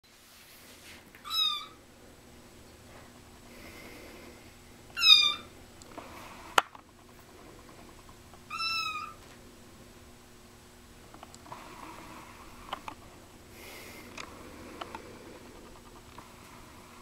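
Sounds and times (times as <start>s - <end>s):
kitten meowing: 1.2s - 1.8s, 5.0s - 5.5s, 8.5s - 9.2s.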